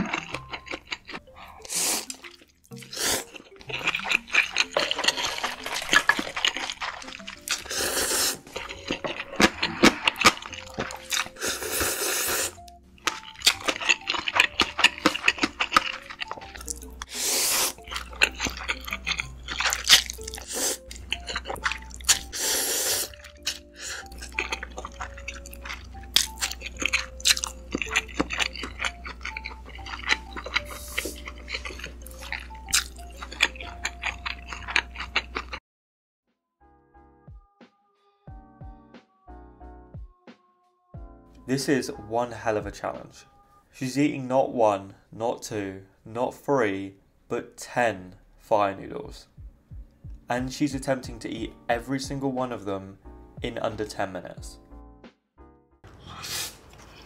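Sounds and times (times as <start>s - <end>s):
person chewing and slurping noodles: 0.0s - 35.6s, 55.9s - 57.0s
soft background music: 0.0s - 35.6s, 36.3s - 57.0s.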